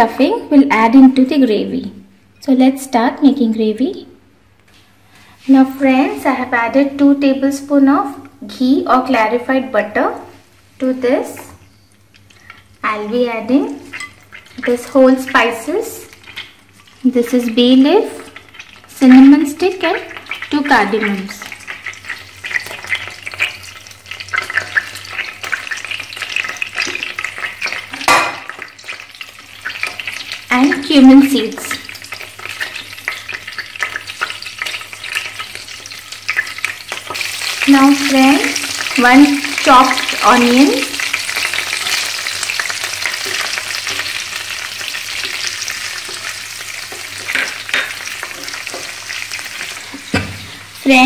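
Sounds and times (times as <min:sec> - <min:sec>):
spices crackling in hot oil: 0:11.2 - 0:51.0
onion sizzling in a frying pan: 0:12.2 - 0:51.0.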